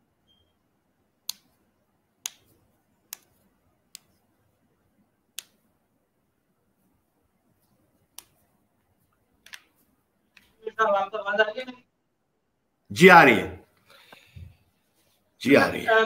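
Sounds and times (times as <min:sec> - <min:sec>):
faint short beep: 0:00.2 - 0:00.6.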